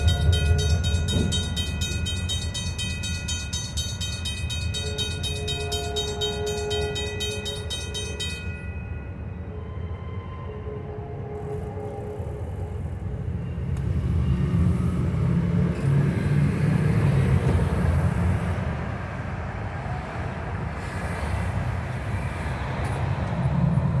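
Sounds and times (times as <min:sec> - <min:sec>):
cars driving past: 0:13.1 - 0:24.0.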